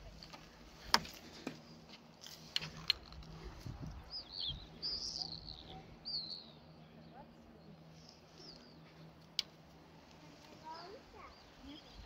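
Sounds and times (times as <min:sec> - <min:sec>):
small bird chirping: 0:03.8 - 0:09.0, 0:10.6 - 0:12.0.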